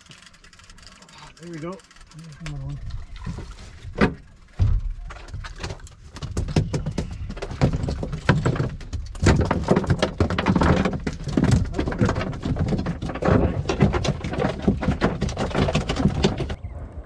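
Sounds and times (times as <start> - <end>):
fish thumping on boat: 3.9 - 16.6
wind rumble on microphone: 15.2 - 17.0.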